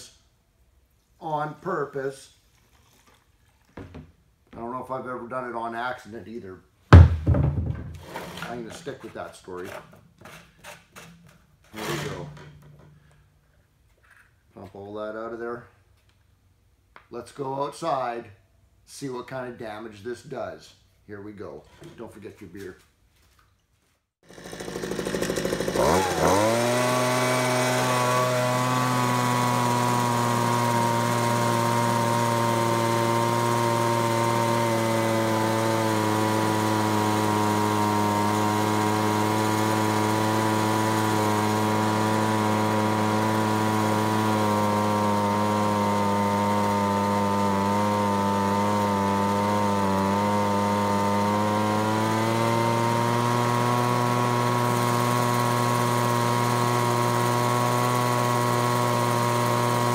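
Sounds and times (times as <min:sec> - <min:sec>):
leaf blower engine running: 0:06.9 - 0:08.9, 0:11.7 - 0:13.1, 0:24.2 - 0:59.9.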